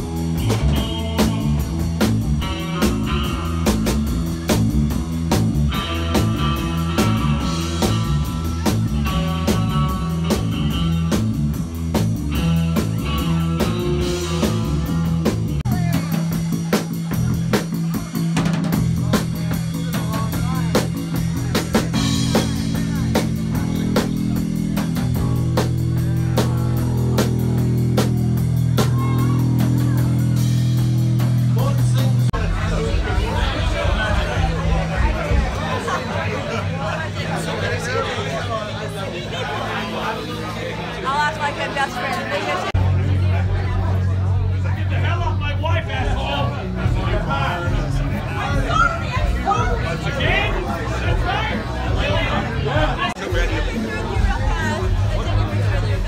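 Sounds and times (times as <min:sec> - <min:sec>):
electric guitar: 0:00.0 - 0:37.7
drum kit beat: 0:00.0 - 0:37.9, 0:45.6 - 0:56.0
bass guitar: 0:00.0 - 0:56.0.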